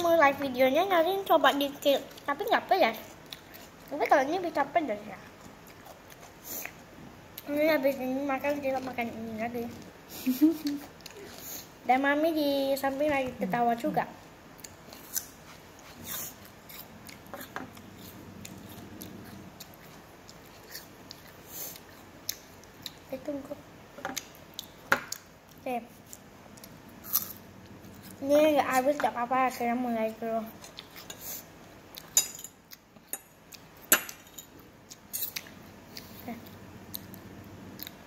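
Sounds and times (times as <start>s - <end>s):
chewing crisp pear: 14.6s - 23.1s, 34.8s - 38.0s.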